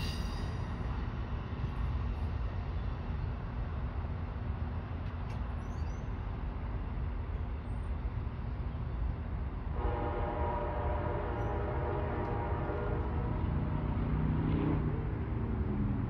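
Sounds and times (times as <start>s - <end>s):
train rumbling: 0.0s - 16.0s
train horn chord: 9.8s - 13.8s.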